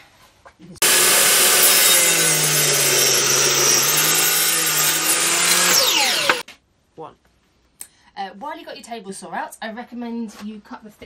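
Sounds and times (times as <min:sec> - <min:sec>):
saw cutting wood: 0:00.8 - 0:06.4
table saw motor whine: 0:00.8 - 0:06.4.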